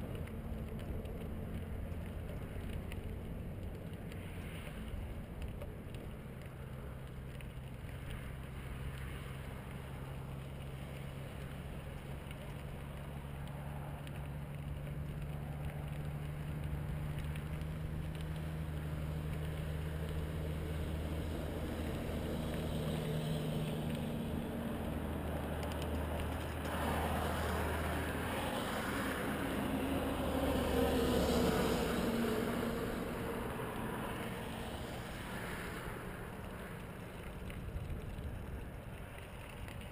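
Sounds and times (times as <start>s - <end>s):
low hum of road traffic: 0.0s - 39.9s
vehicle passing: 12.5s - 38.4s.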